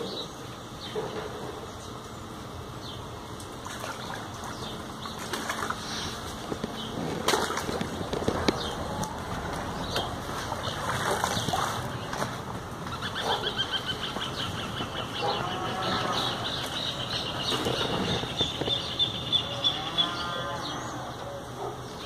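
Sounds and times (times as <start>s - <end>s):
water splashing and sloshing: 3.2s - 19.7s.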